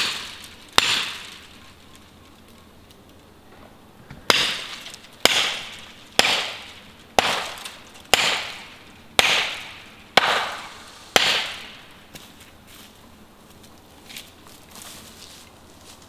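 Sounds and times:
axe striking tree: 0.0s - 1.4s, 4.3s - 12.3s.

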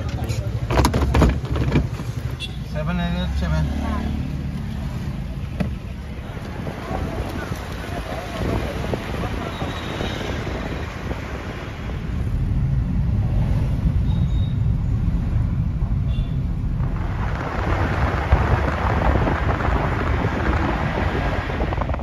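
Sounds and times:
road rumble inside car: 0.0s - 22.0s
wind rush: 6.0s - 22.0s.

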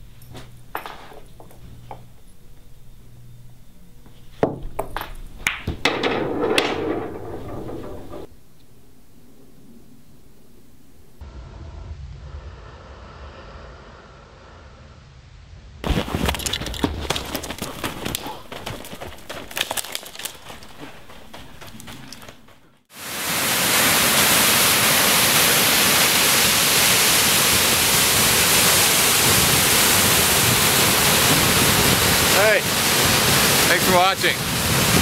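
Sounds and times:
crackling clicks: 15.9s - 22.6s
waterfall rushing: 22.9s - 35.0s.

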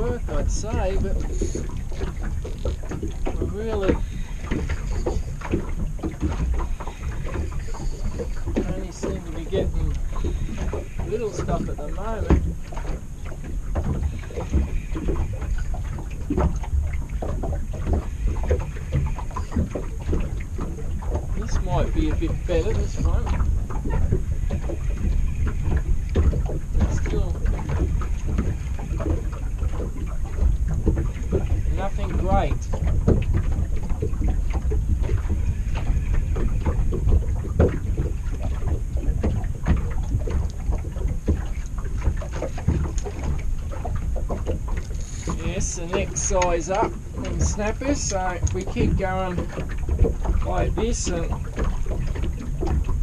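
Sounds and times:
waves lapping against boat hull: 0.0s - 53.0s
wind rumbling on microphone: 0.0s - 53.0s.

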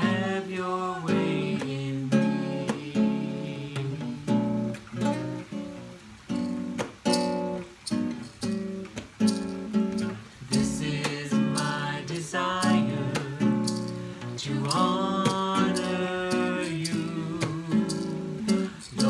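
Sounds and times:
woman and man singing: 0.0s - 4.6s, 10.1s - 19.0s
classical guitar strumming: 0.0s - 19.0s.

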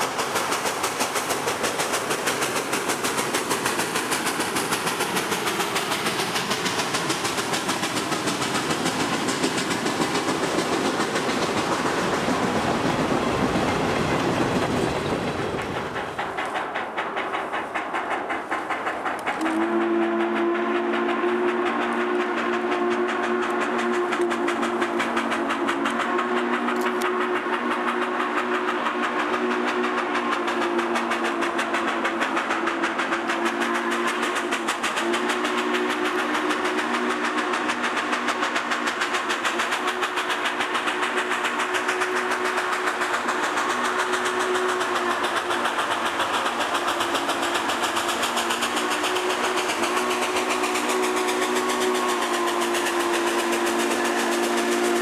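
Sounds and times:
locomotive exhaust beat: 0.0s - 55.0s
steam locomotive whistle: 19.2s - 55.0s.

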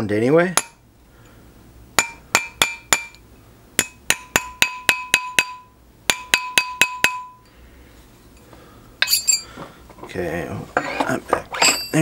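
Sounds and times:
mallet tapping ring on mandrel: 3.8s - 7.5s.

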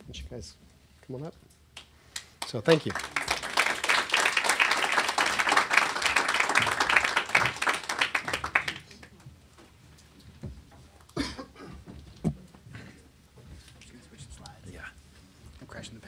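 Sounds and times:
audience applause: 2.4s - 9.1s.

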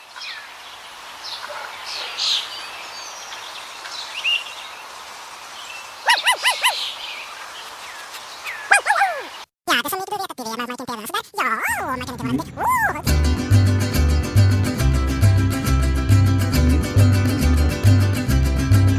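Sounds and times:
steady hiss: 0.0s - 6.1s
birds chirping: 5.5s - 9.5s
loud pitched bird calls: 5.6s - 9.5s.

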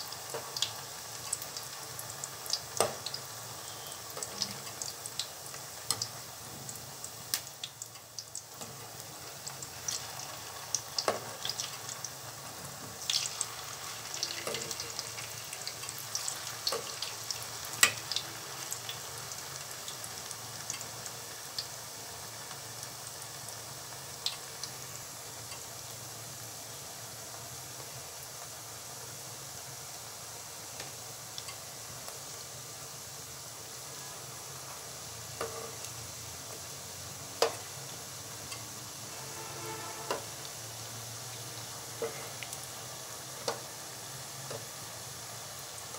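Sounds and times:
dough sizzling in hot oil: 0.0s - 45.9s
oil popping and crackling: 7.0s - 20.9s.

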